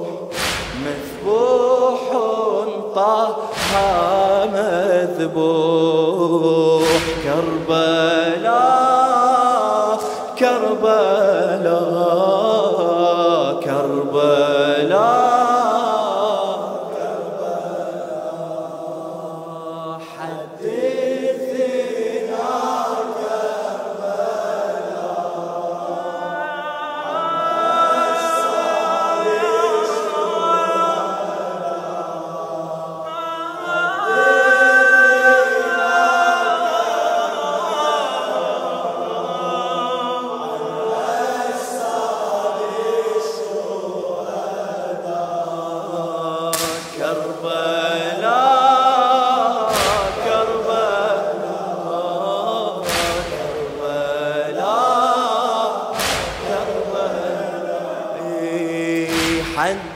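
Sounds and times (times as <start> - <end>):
layered choir voices: 0.0 - 59.9
man chanting mourning elegy: 59.2 - 59.9.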